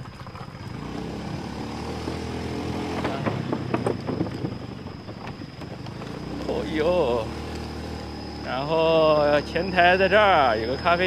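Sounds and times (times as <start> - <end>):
small motorcycle engine running: 0.0 - 11.0
wooden boards knocking and rattling: 2.8 - 6.2.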